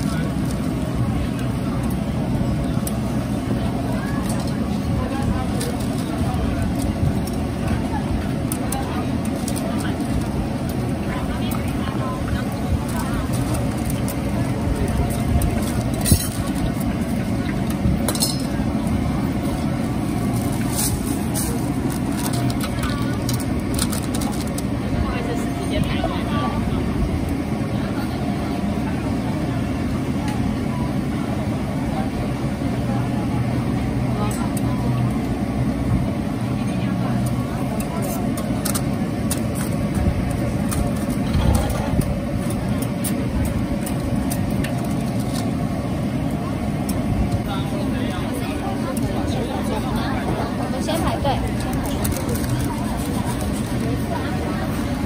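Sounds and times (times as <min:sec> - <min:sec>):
deep-fryer roaring: 0:00.0 - 0:55.0
steady background noise: 0:00.0 - 0:55.0
metal tongs clinking on rack: 0:18.1 - 0:18.5.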